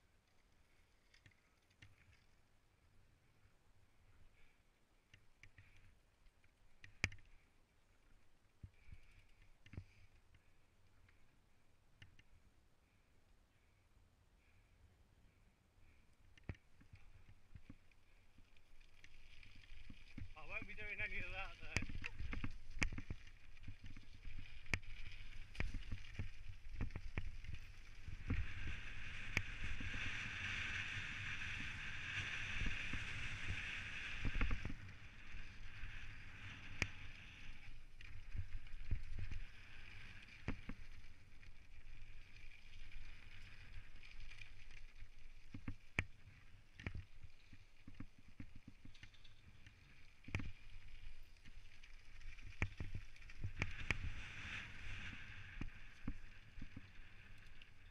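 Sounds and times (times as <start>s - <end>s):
bike tyres rolling on gravel: 16.4s - 57.9s
steady hiss: 20.1s - 22.8s.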